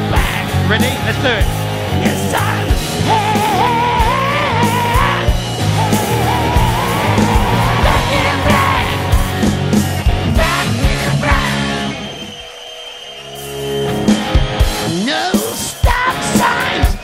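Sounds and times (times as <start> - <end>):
bass guitar: 0.0 - 12.1
electric guitar: 0.0 - 12.3
drums: 0.0 - 17.0
person singing: 3.0 - 9.6, 15.2 - 17.0.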